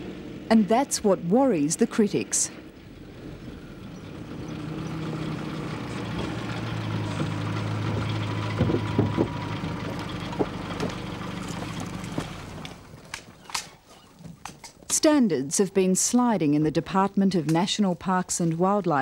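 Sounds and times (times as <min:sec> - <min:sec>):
vehicle engine hum: 0:00.0 - 0:17.5
knocks and rattles: 0:04.0 - 0:13.7.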